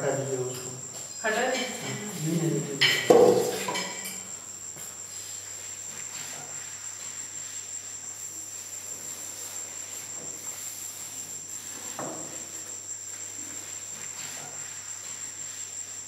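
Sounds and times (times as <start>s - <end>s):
crickets trilling: 0.0s - 16.0s
utensil clinking against dish: 2.8s - 4.2s.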